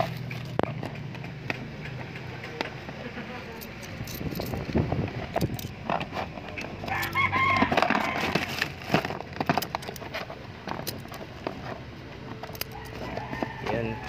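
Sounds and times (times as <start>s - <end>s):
scattered clicks and knocks: 0.0s - 13.8s.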